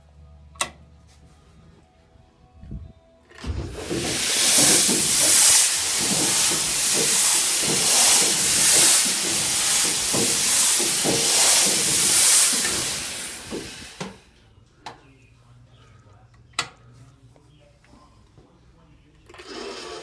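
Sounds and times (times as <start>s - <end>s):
rhythmic hiss of air from cylinders: 3.4s - 14.8s.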